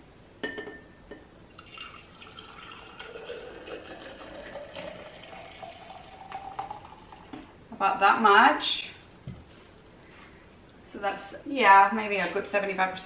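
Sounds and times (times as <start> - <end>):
juice trickling into a glass jar: 1.5 - 7.5.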